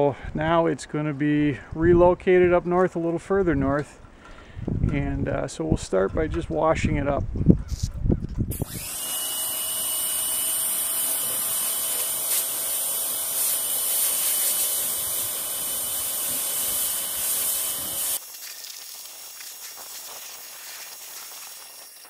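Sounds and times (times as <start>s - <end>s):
pressure washer spraying water: 8.5s - 22.0s.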